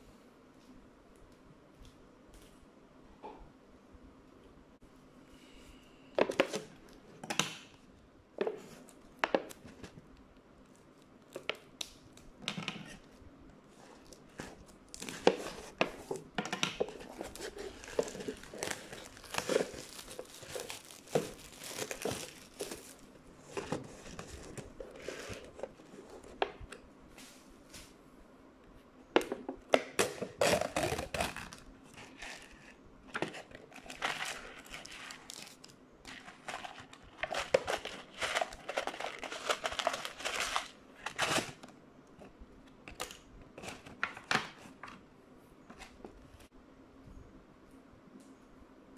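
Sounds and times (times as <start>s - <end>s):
plastic film crinkling: 8.8s - 26.4s, 30.3s - 32.6s, 33.2s - 41.6s.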